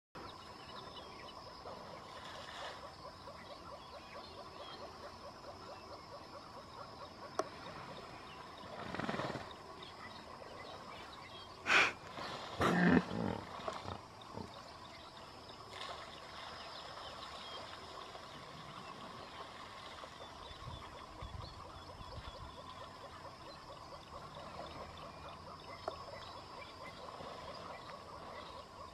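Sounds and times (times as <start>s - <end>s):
hippo farting: 12.6s - 13.4s.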